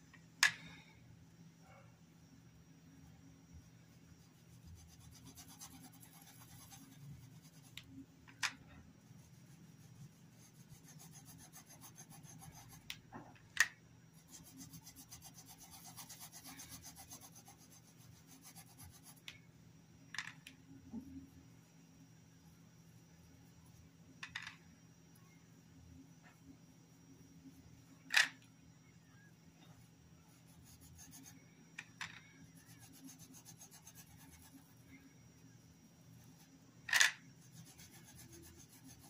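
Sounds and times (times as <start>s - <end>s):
paintbrush rubbing on cloth: 4.2s - 7.8s, 9.1s - 12.8s, 14.2s - 19.2s, 30.3s - 31.4s, 32.6s - 34.7s, 37.4s - 39.0s.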